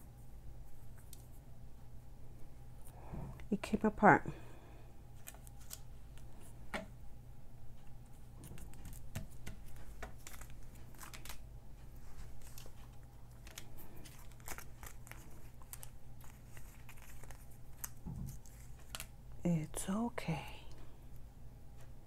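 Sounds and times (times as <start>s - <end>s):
paper crinkling and crackling: 5.2s - 6.4s, 8.1s - 19.2s.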